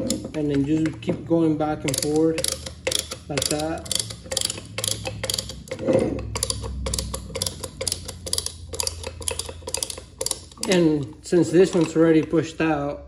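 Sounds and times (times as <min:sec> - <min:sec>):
ratchet tool clicking: 0:00.0 - 0:12.6.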